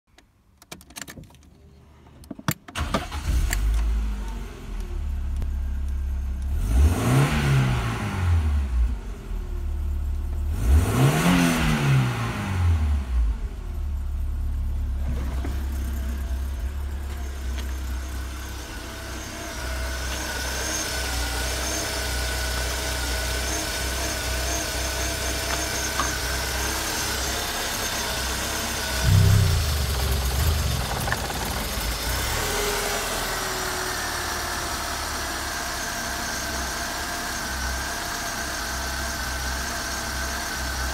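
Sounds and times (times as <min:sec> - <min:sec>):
car engine starting and revving: 0:02.8 - 0:05.4, 0:06.4 - 0:09.6, 0:10.4 - 0:13.7, 0:14.6 - 0:37.4
thump: 0:29.0 - 0:32.1.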